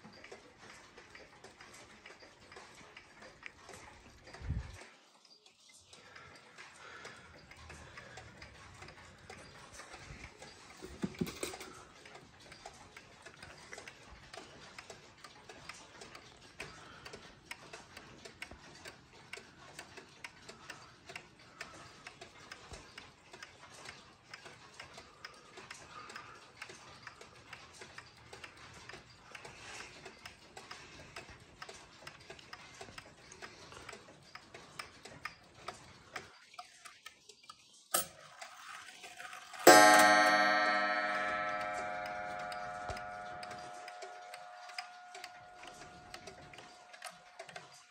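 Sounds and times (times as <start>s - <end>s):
clock ticking: 0.0s - 47.9s
clock gong ringing: 39.6s - 47.5s.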